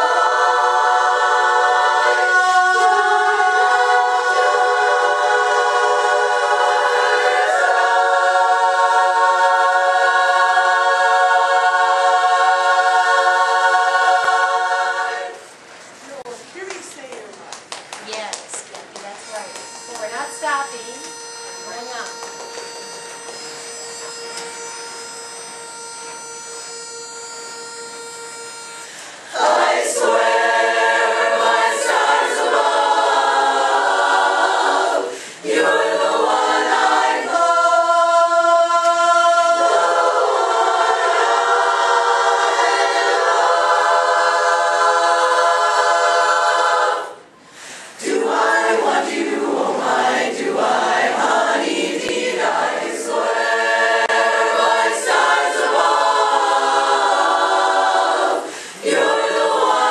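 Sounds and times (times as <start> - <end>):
women's chorus singing a cappella: 0.0 - 15.7, 28.5 - 59.9.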